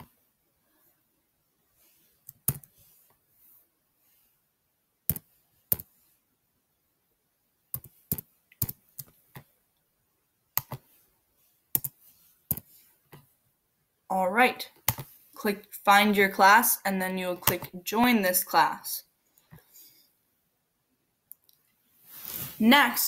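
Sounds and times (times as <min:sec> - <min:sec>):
computer keyboard typing: 0:02.2 - 0:02.8, 0:05.1 - 0:05.9, 0:07.7 - 0:09.5, 0:10.6 - 0:10.8, 0:11.8 - 0:12.7, 0:14.8 - 0:15.1, 0:17.4 - 0:17.8.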